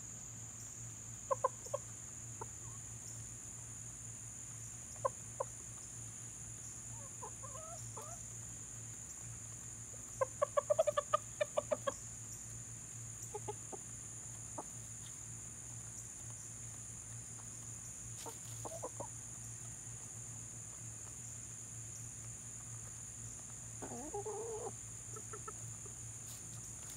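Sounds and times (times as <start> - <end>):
chickens clucking: 1.2 - 2.8, 4.9 - 26.9.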